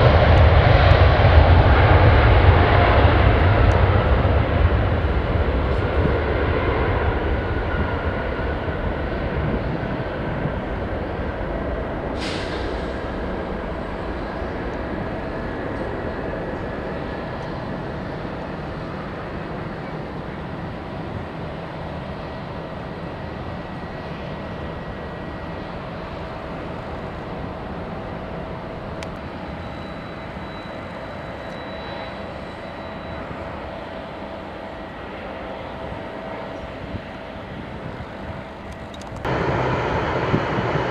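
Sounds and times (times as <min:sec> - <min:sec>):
jet engines whining: 0:00.0 - 0:40.9.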